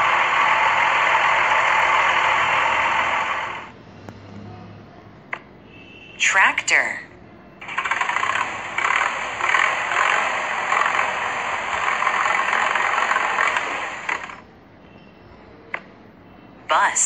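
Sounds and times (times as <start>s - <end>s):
tractor engine clattering: 7.6s - 14.4s.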